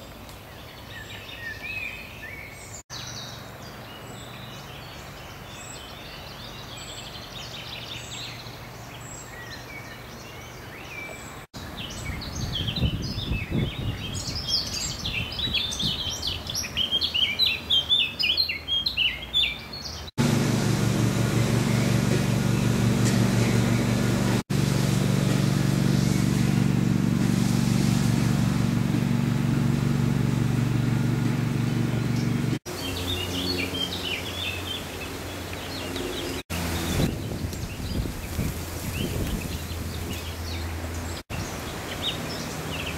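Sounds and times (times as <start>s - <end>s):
songbirds singing: 0.0s - 24.4s, 28.4s - 42.9s
low engine drone: 20.2s - 37.1s.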